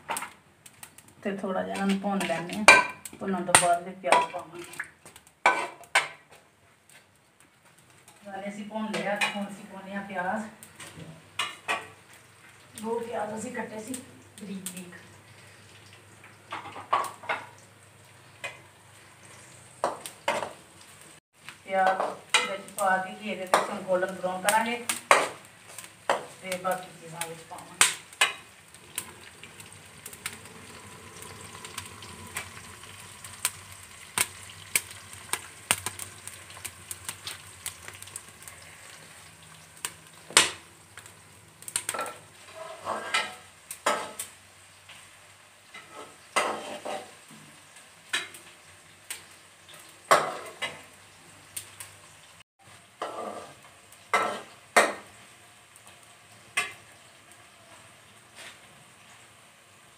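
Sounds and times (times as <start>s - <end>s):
onions sizzling in oil: 0.0s - 59.9s
metal spoon scraping a pan: 5.4s - 6.2s, 41.8s - 44.3s, 45.7s - 47.3s, 53.0s - 55.0s.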